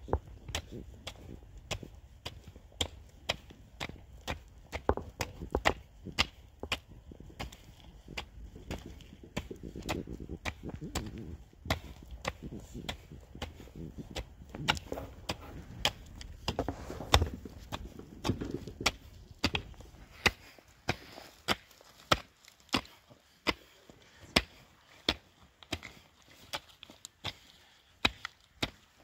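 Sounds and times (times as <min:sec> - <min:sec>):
hand tool chopping: 0:28.0 - 0:28.8.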